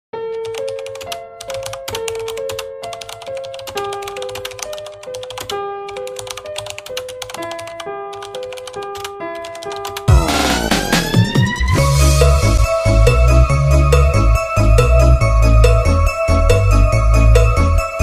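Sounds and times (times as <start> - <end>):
keyboard typing clicks: 0.2 - 10.1
electronic track with heavy bass: 10.1 - 13.9.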